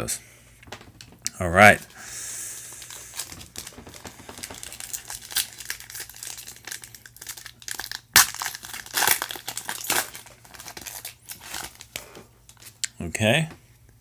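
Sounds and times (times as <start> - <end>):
foil wrapper crinkling: 2.6 - 12.8
foil wrapper sharp crack: 2.8 - 12.7.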